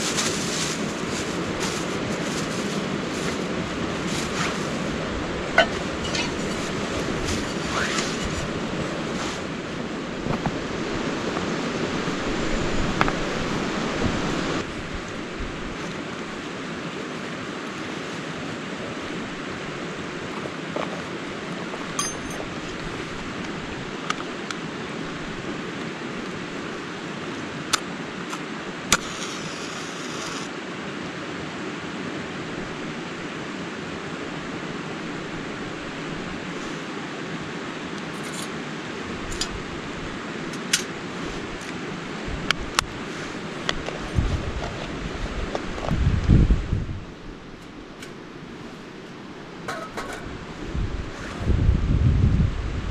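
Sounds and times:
metal tin and stove clinks: 0:05.6 - 0:06.7, 0:22.0 - 0:22.5.

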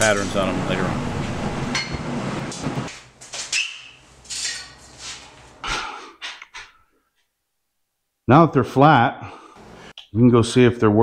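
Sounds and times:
steady hum: 0:00.0 - 0:02.9.

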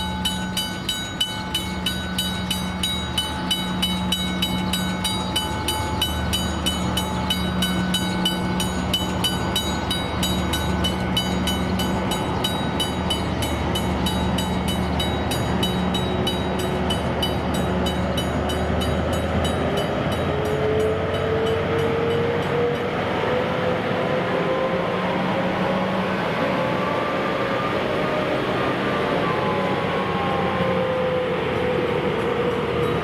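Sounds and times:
level-crossing bell ringing: 0:00.0 - 0:22.4
diesel locomotive engines: 0:00.0 - 0:33.0.

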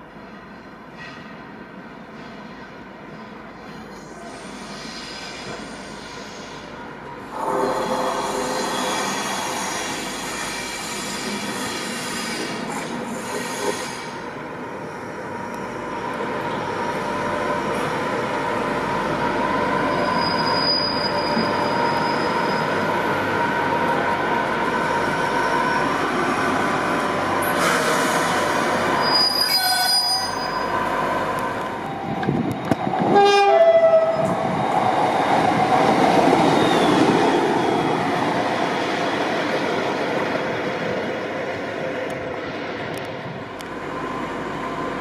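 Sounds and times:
train rumbling: 0:00.0 - 0:45.0
train horn blast: 0:07.3 - 0:09.7, 0:33.1 - 0:34.1.

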